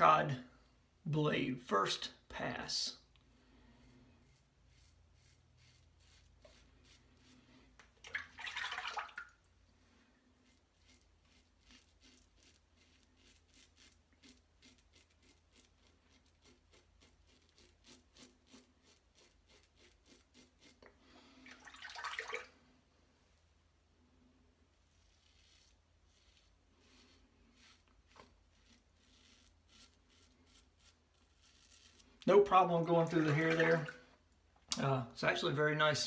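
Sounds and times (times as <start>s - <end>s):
razor scraping stubble: 3.8s - 7.5s, 10.4s - 20.9s, 24.9s - 33.2s.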